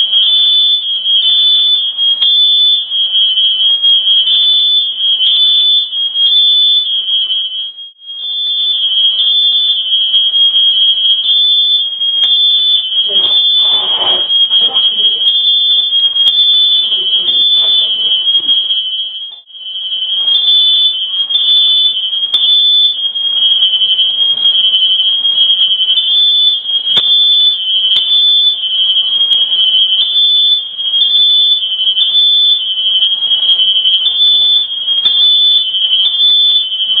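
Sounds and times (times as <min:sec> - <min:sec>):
shrill fire alarm: 0:00.0 - 0:37.0.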